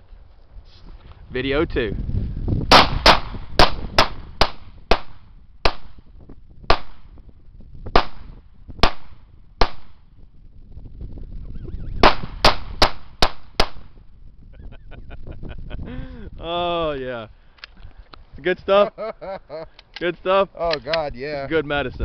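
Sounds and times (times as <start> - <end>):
pistol shots with echo: 2.7 - 6.0, 6.7 - 7.1, 8.0 - 10.0, 12.0 - 13.9.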